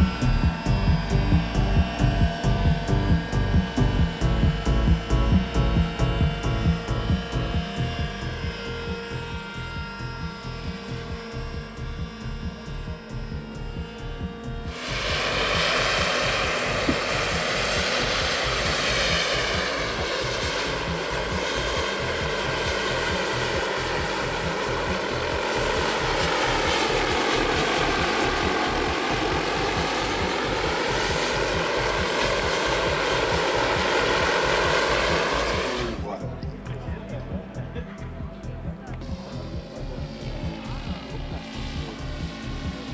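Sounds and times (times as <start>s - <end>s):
model helicopter rotor and engine: 0.0s - 42.9s.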